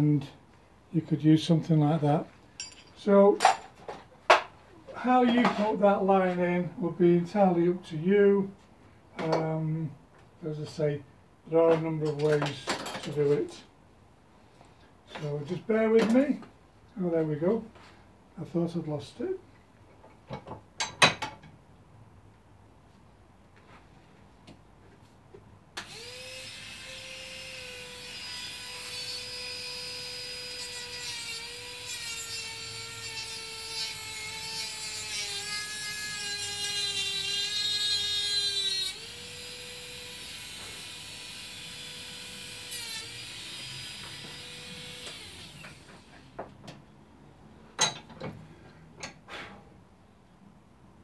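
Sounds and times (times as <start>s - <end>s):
rotary tool whining: 36.2s - 46.3s.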